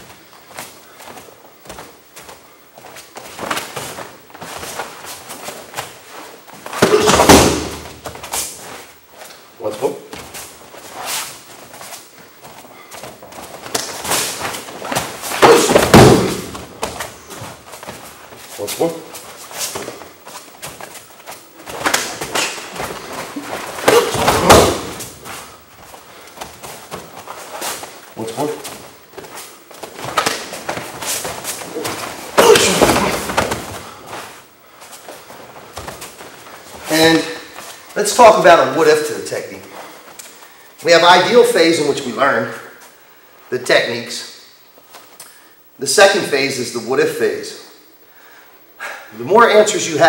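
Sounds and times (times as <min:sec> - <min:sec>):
feet scuffing on mats: 0:00.0 - 0:38.1
rustling uniforms: 0:00.0 - 0:43.5
thumps: 0:06.6 - 0:08.5, 0:12.9 - 0:18.5, 0:19.6 - 0:28.0
body thudding onto mat: 0:06.7 - 0:08.3, 0:13.1 - 0:18.1, 0:21.7 - 0:25.5, 0:28.7 - 0:34.3.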